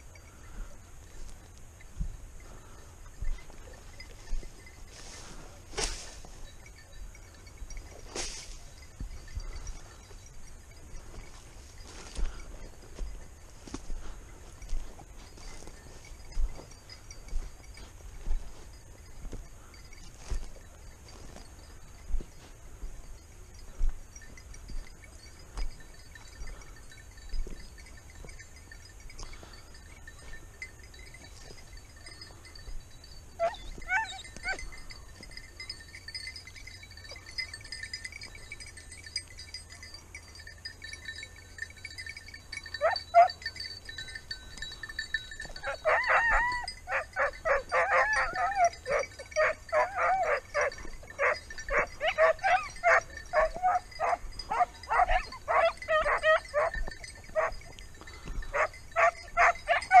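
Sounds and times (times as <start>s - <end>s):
hunting dogs barking: 33.3s - 35.0s, 42.6s - 43.6s, 45.4s - 60.0s.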